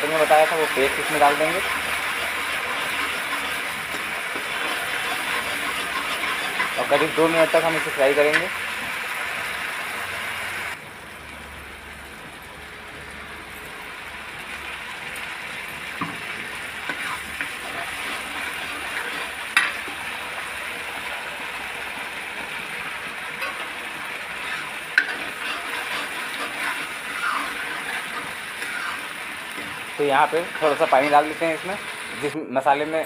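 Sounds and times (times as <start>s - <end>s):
paste sizzling in hot oil: 0.0s - 10.8s, 13.2s - 33.0s
ladle clinking and scraping pan: 0.1s - 8.6s, 16.0s - 20.0s, 23.2s - 32.2s.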